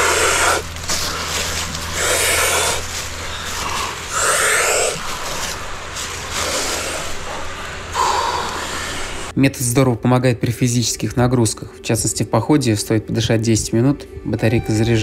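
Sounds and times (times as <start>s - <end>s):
people breathing forcefully: 0.0s - 9.4s.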